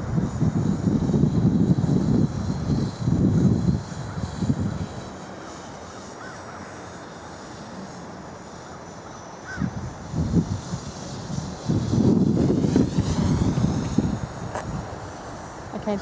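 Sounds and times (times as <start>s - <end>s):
wind buffeting microphone: 0.0s - 5.2s, 9.5s - 16.0s
quadcopter high whine: 0.0s - 16.0s.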